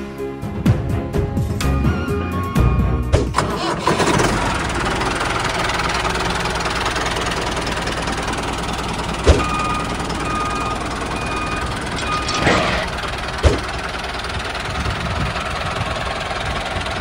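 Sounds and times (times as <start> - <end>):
tractor engine running: 3.0 - 17.0
reversing alarm beeping: 9.0 - 13.0.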